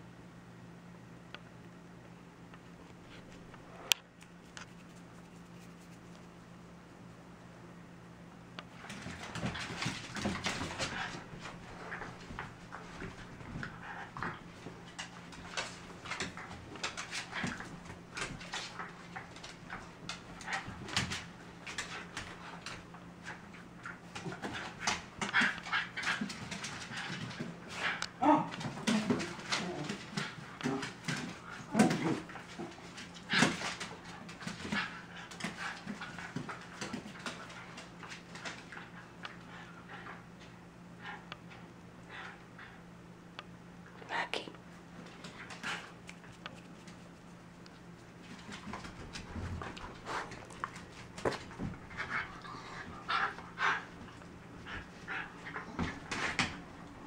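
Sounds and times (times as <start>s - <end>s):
dog claws scrabbling on wood floor: 8.7s - 28.0s, 45.0s - 57.0s.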